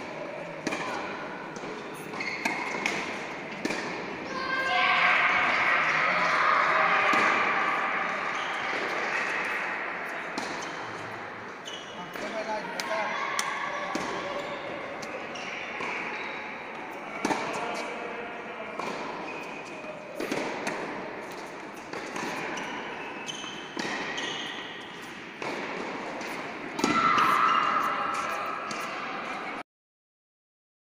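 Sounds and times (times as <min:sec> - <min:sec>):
tennis balls struck and bouncing: 0:00.0 - 0:04.3, 0:05.4 - 0:11.2, 0:12.1 - 0:15.2, 0:15.8 - 0:16.1, 0:16.7 - 0:17.9, 0:18.7 - 0:19.4, 0:20.0 - 0:29.0
murmur of voices: 0:00.0 - 0:23.3.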